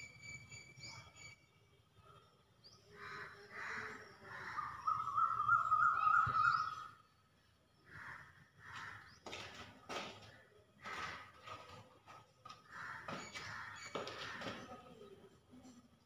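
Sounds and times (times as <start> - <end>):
birds chirping: 0.0 - 15.4
warbling bird call: 3.8 - 7.0.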